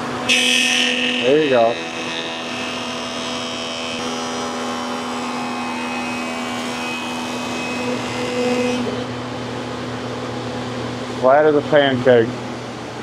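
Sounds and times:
wood-surfacing machine running: 0.0s - 9.5s.

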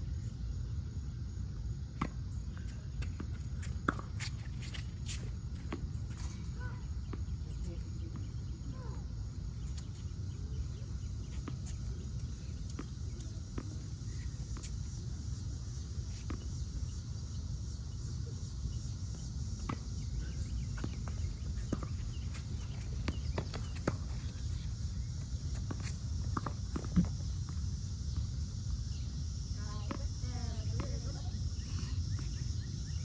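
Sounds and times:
insect chorus: 0.0s - 33.0s.

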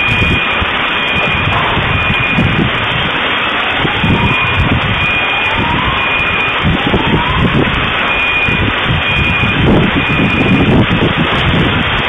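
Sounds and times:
faint alarm beeps: 0.0s - 2.6s, 4.0s - 6.6s, 8.0s - 10.7s
rising wailing tone: 0.0s - 10.6s
distorted rumbling: 0.0s - 12.0s.

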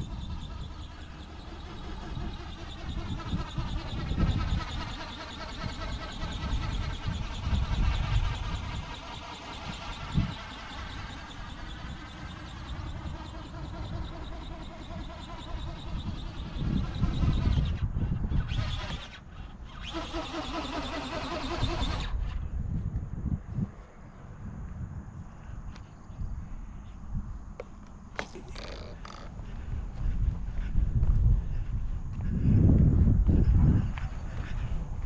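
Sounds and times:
wind rumble on microphone: 0.0s - 20.2s, 21.2s - 35.0s
electric motor and gearbox whine: 0.0s - 22.5s, 27.5s - 30.0s.

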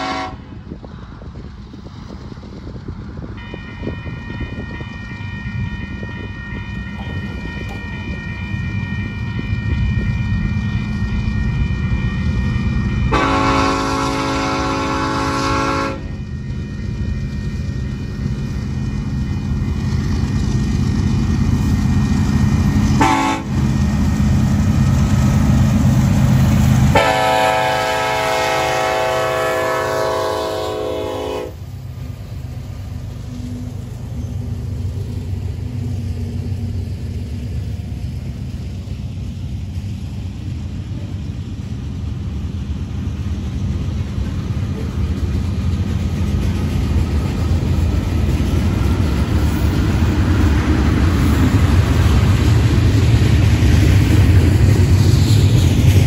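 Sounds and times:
locomotive air horn: 0.0s - 0.5s, 3.4s - 9.3s, 13.0s - 16.2s, 23.0s - 23.6s, 26.9s - 31.6s
freight cars rolling on rails: 0.0s - 56.0s.

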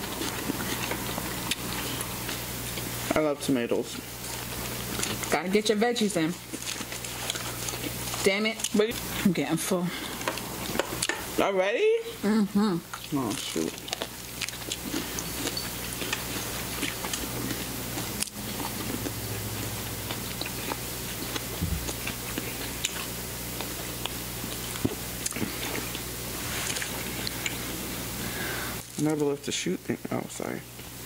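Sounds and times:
low steady hum: 0.0s - 31.0s
chewing and biting: 6.4s - 8.8s, 12.9s - 26.0s.

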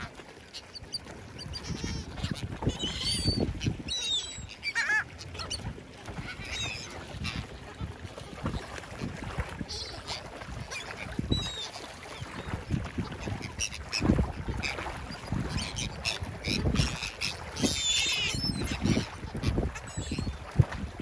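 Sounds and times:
gull calls: 0.0s - 8.0s, 15.5s - 20.4s
birds splashing and flapping: 0.0s - 21.0s
wind rumbling on microphone: 1.4s - 4.6s, 5.4s - 11.6s, 12.2s - 21.0s.

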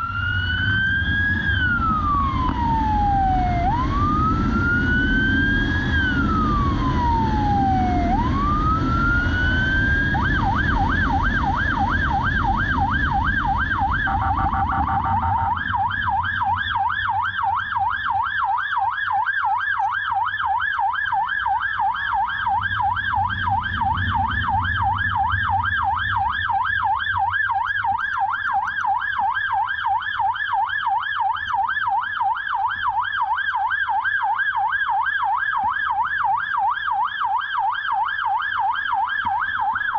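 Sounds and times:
engine and wind rumble: 0.0s - 28.3s
electronic siren wailing and yelping: 0.0s - 39.9s.

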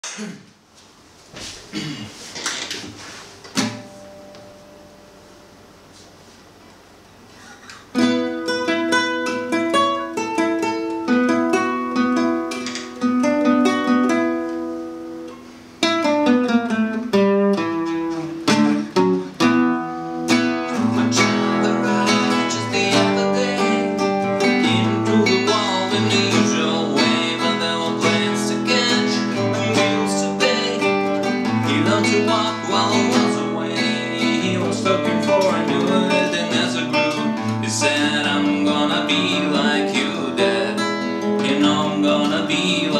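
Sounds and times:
classical guitar fingerpicked: 7.7s - 42.9s
man singing: 20.7s - 42.9s.

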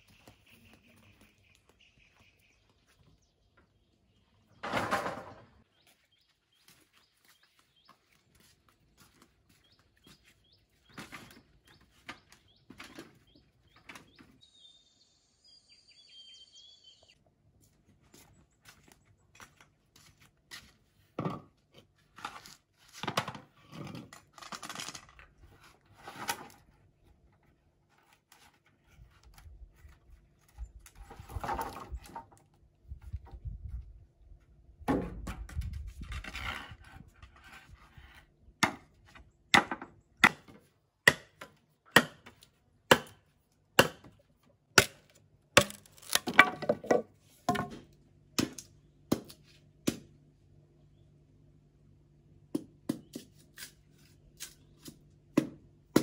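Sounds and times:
bird chirping: 0.0s - 4.6s, 9.5s - 17.2s
knocks and rustles: 4.6s - 5.6s.

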